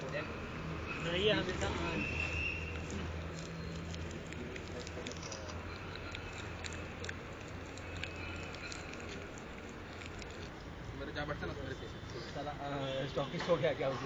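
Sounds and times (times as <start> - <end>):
faint clicks and rustles: 1.6 - 10.8.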